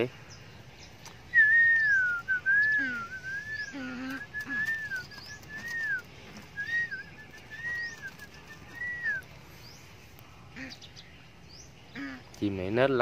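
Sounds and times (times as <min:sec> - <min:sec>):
person whistling a tune: 0:01.4 - 0:03.6, 0:06.6 - 0:09.2.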